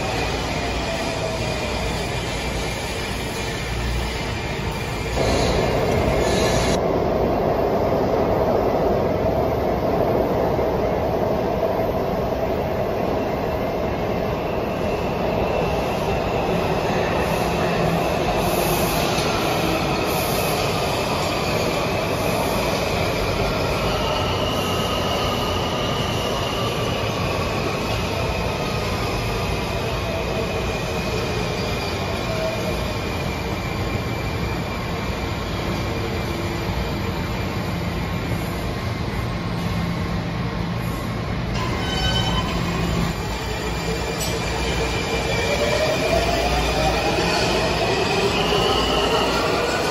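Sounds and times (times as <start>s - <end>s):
train wheels rumbling on rails: 0.0s - 49.9s
high wheel squeal: 41.6s - 45.7s.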